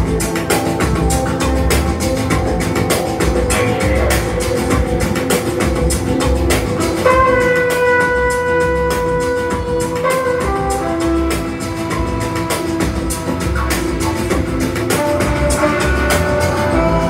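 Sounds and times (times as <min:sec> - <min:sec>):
steady drum beat: 0:00.0 - 0:17.0
wind instrument notes: 0:06.8 - 0:17.0.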